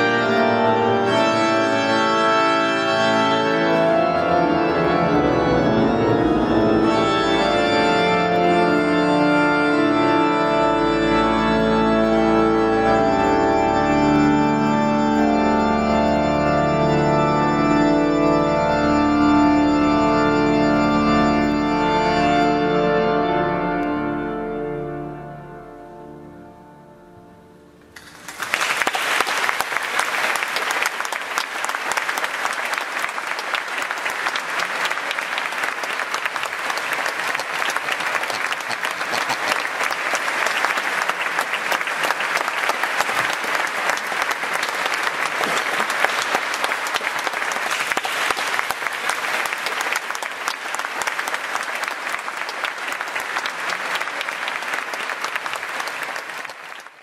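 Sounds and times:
organ music: 0.0 - 56.8
audience applauding: 28.0 - 57.0.

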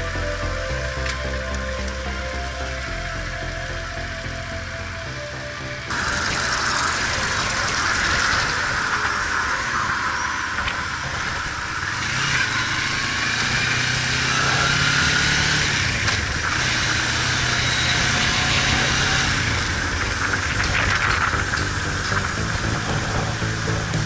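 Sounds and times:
motorcycle engine running: 0.0 - 24.0
rushing wind and road noise: 5.5 - 24.0.

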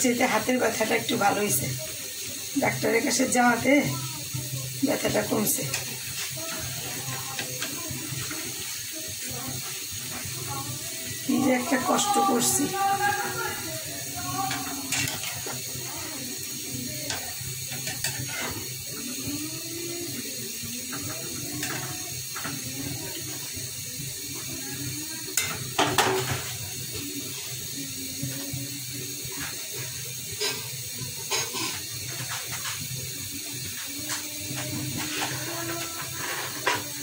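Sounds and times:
food sizzling in a pan: 0.0 - 37.0
metal spatula scraping a pan: 14.5 - 15.7, 17.1 - 18.8, 34.1 - 37.0.

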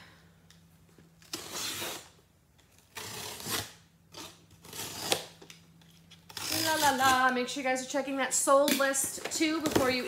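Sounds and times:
box cutter slicing packing tape: 1.2 - 2.2, 2.8 - 5.4, 6.3 - 7.3.

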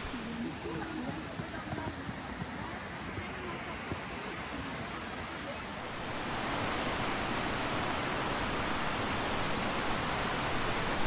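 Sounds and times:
waterfall hissing: 0.0 - 0.5, 5.6 - 11.0.

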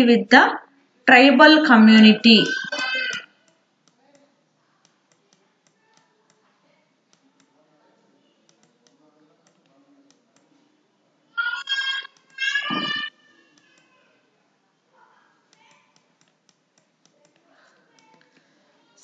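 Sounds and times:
person speaking: 0.0 - 3.3, 11.4 - 14.0
stylus tapping on tablet: 15.5 - 18.3.

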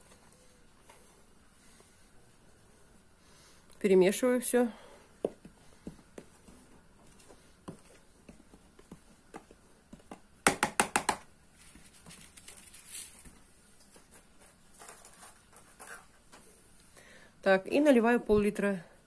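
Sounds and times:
hand stirring dry flour: 5.1 - 10.4.

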